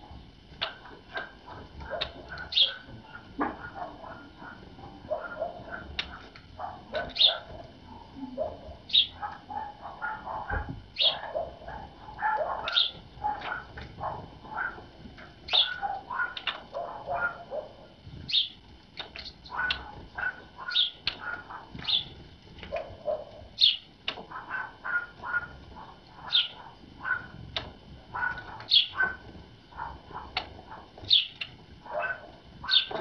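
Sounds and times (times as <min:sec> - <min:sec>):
lower bird chirping: 0:02.0 - 0:03.2, 0:06.9 - 0:07.6, 0:08.2 - 0:09.2, 0:10.9 - 0:11.5, 0:12.6 - 0:13.6, 0:15.5 - 0:17.6, 0:18.3 - 0:22.2, 0:23.5 - 0:25.5, 0:26.2 - 0:26.7, 0:28.2 - 0:29.2, 0:30.1 - 0:33.0
high sharp bird calls: 0:02.5 - 0:02.9, 0:08.9 - 0:09.2, 0:11.0 - 0:11.3, 0:12.6 - 0:13.5, 0:15.5 - 0:16.6, 0:18.3 - 0:19.9, 0:20.6 - 0:22.2, 0:23.6 - 0:23.9, 0:26.2 - 0:26.6, 0:28.2 - 0:29.0, 0:31.1 - 0:31.5, 0:32.6 - 0:33.0.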